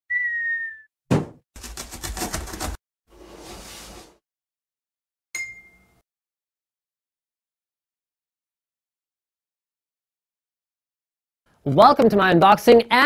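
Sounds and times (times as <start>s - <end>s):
whistle-like tone: 0.1s - 0.9s
thump: 1.1s - 1.4s
bright ding: 5.4s - 6.0s.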